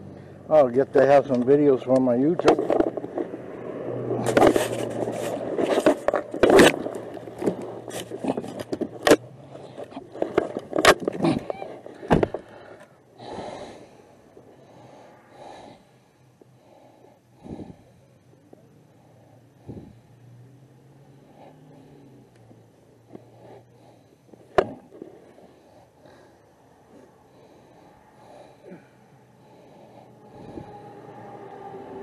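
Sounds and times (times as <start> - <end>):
clothing scraping microphone: 4.1 - 12.1, 30.3 - 31.2.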